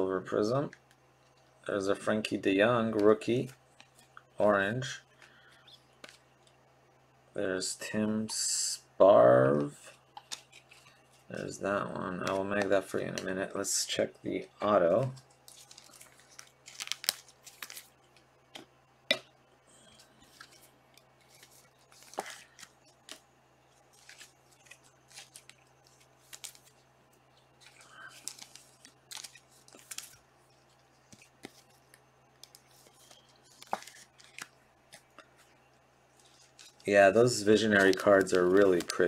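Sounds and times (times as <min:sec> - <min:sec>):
plastic packaging rustling: 0:14.4 - 0:18.6, 0:19.8 - 0:39.0
trading cards clicking and snapping: 0:27.6 - 0:30.2, 0:31.1 - 0:35.4, 0:36.2 - 0:39.0.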